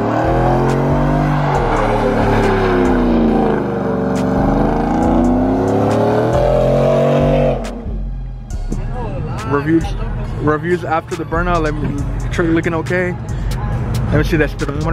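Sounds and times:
truck engine revving hard: 0:00.0 - 0:08.2.

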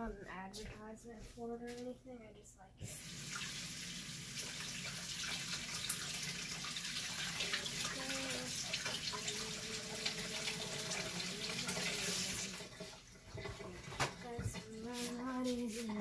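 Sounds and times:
tap running into a sink: 0:04.4 - 0:15.2.

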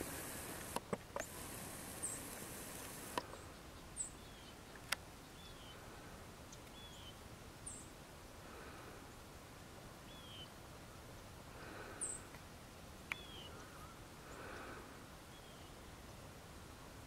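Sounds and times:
high hiss: 0:00.0 - 0:03.5
small birds chirping: 0:00.0 - 0:05.9, 0:06.5 - 0:07.9, 0:10.1 - 0:10.6, 0:11.6 - 0:12.4, 0:13.1 - 0:16.2.

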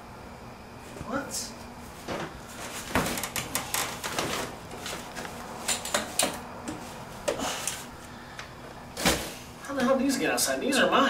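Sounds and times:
plastic bags rustling: 0:02.0 - 0:06.0.

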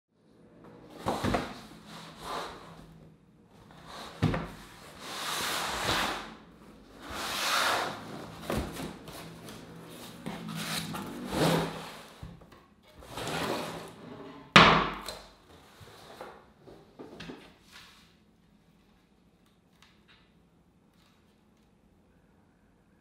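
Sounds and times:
skateboard sliding against cardboard: 0:01.0 - 0:02.8, 0:03.8 - 0:06.4, 0:07.0 - 0:12.2
cardboard flaps rustling: 0:07.0 - 0:12.4.

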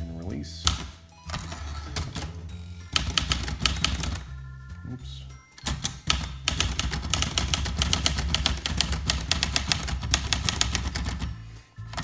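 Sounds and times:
typewriter keystrokes: 0:02.9 - 0:04.2, 0:05.6 - 0:11.3.

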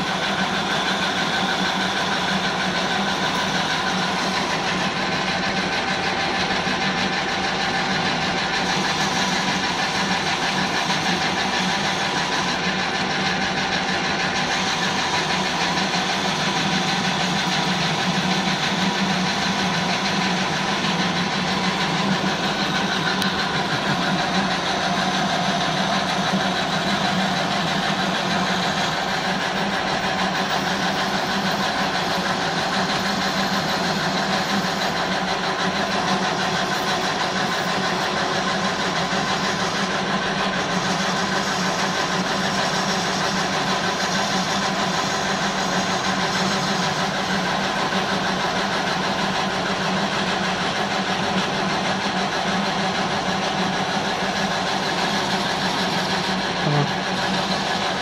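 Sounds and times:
metal lathe humming and whining: 0:00.0 - 0:58.0.

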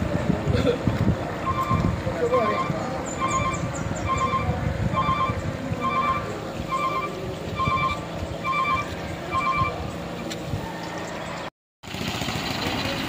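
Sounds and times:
diesel engine rumble: 0:00.0 - 0:13.0
machinery warning beeps: 0:01.4 - 0:10.0.

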